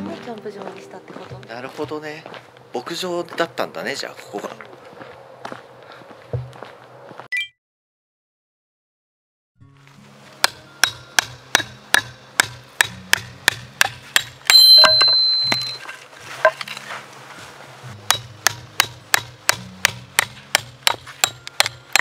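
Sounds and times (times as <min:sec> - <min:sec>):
background music with clicking beat: 0:18.1 - 0:22.0.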